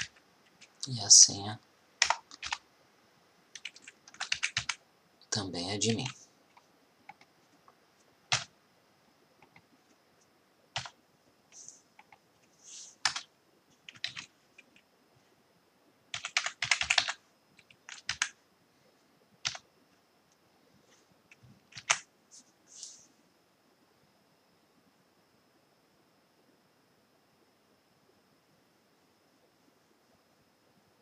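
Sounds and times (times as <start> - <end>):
computer keyboard typing: 0.0 - 1.0, 2.0 - 2.6, 3.5 - 4.8, 5.9 - 7.3, 8.3 - 8.5, 10.8 - 11.0, 12.0 - 12.2, 13.0 - 14.8, 16.1 - 18.4, 19.4 - 19.6, 21.3 - 22.1.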